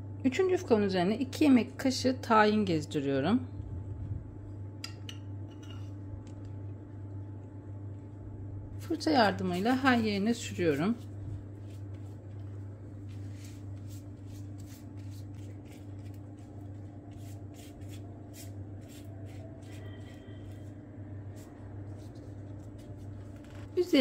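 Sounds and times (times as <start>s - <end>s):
low hum: 3.4s - 24.0s
pastry brush strokes: 8.8s - 24.0s.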